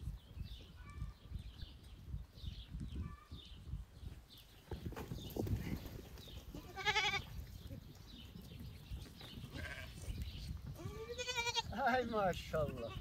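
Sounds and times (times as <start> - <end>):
animals scuffling: 4.3 - 13.0
sheep bleating: 6.6 - 7.2, 9.5 - 10.0, 10.8 - 11.8.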